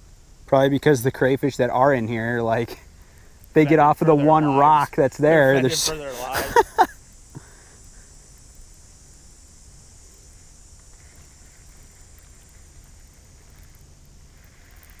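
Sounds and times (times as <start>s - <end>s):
high hiss: 0.0s - 15.0s.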